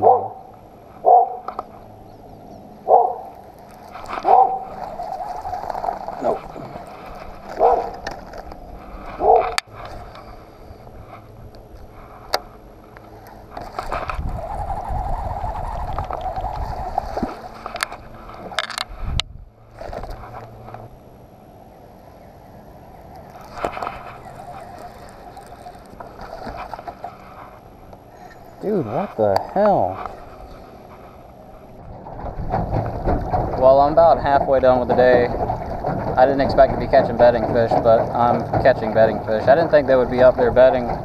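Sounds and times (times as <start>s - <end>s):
dog barking: 0.0s - 1.5s, 2.9s - 3.3s, 4.2s - 4.8s, 7.6s - 8.0s, 9.2s - 9.6s
rushing rumbling noise: 0.0s - 41.0s.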